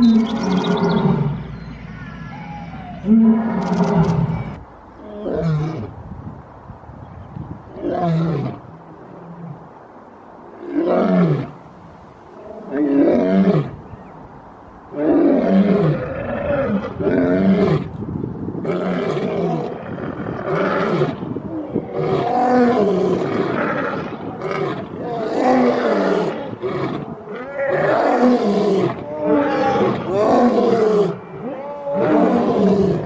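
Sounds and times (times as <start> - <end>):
lions roaring: 3.0 - 4.5, 21.8 - 33.0.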